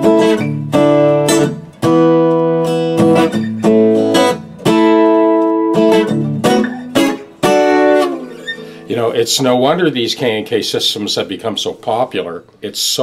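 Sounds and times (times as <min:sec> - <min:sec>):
acoustic guitar chords strummed: 0:00.0 - 0:09.4.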